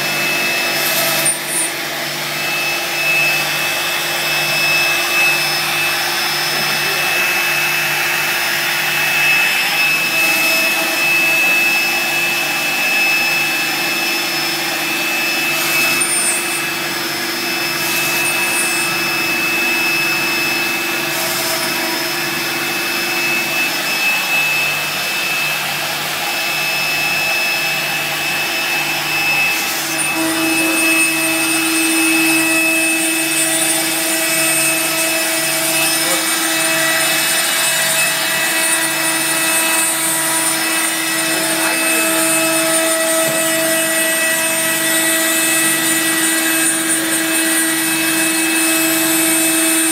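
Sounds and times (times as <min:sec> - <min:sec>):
cutter routing wood: 0:00.0 - 0:49.9
dust extraction vacuum: 0:00.0 - 0:49.9
router spindle motor whining: 0:00.0 - 0:49.9.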